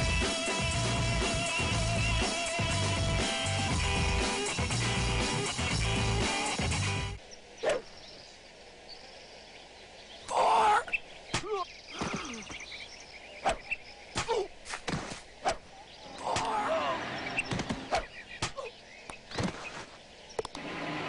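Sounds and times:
warbling calls: 0:07.5 - 0:08.2.

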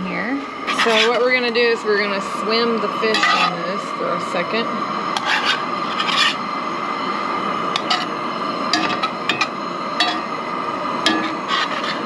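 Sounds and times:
metal utensil clinking on pan: 0:03.1 - 0:03.6, 0:08.7 - 0:10.3, 0:11.0 - 0:12.0.

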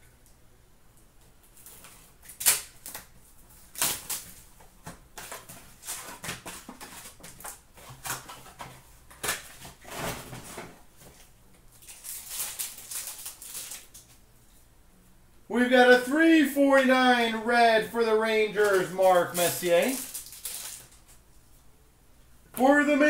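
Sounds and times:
cards being handled: 0:18.6 - 0:21.2.

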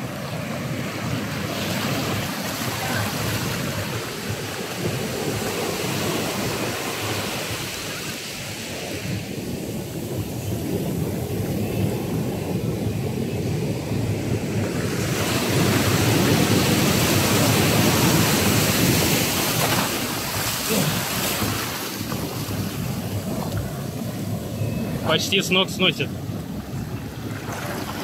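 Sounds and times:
foam washing up sand: 0:15.1 - 0:24.4
surf breaking: 0:15.2 - 0:28.0.

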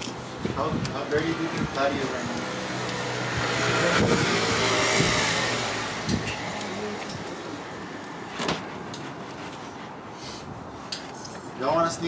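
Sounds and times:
vehicle driving past: 0:02.0 - 0:08.4.

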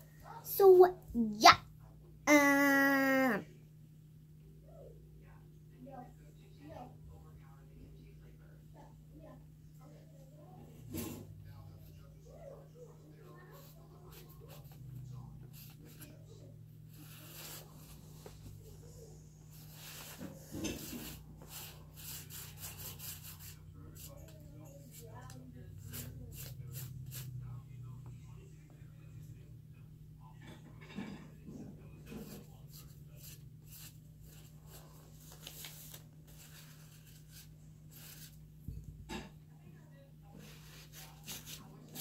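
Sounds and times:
paintbrush scrubbing on paper: 0:16.9 - 0:18.5, 0:19.5 - 0:24.2, 0:25.8 - 0:27.4, 0:32.1 - 0:38.4
paintbrush swishing on paper: 0:32.1 - 0:38.4.

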